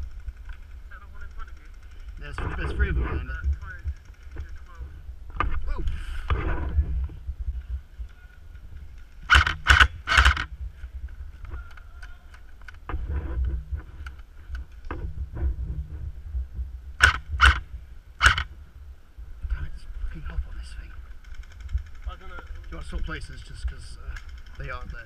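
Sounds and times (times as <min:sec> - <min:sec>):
low rumble: 0:00.0 - 0:24.2
gun handling noise: 0:08.6 - 0:15.1, 0:18.2 - 0:18.5
airsoft gun shots: 0:09.3 - 0:10.5, 0:17.0 - 0:17.6, 0:18.2 - 0:18.5.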